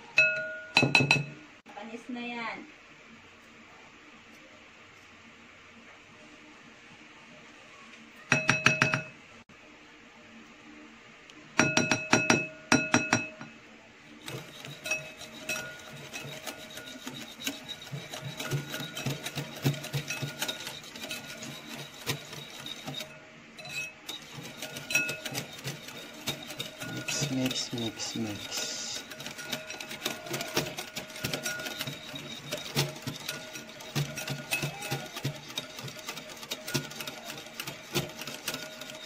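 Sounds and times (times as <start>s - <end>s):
whisk clinking against glass bowl: 0.2s - 1.3s, 8.3s - 9.1s, 11.6s - 13.5s, 14.2s - 39.0s
taps on glass bowl ringing: 0.2s - 1.4s, 8.3s - 9.1s, 11.6s - 13.5s.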